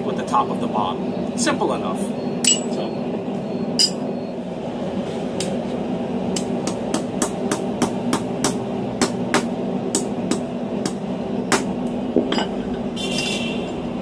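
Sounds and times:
steady low hum: 0:00.0 - 0:14.0
hammer striking steel on anvil: 0:02.4 - 0:02.8, 0:03.8 - 0:04.0.

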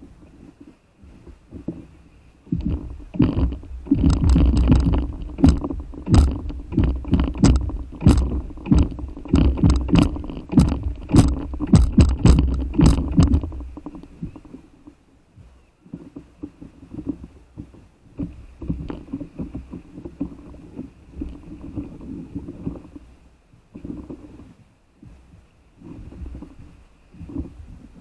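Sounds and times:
water slapping against paddle board: 0:00.0 - 0:28.0
low rumble: 0:02.5 - 0:15.0.

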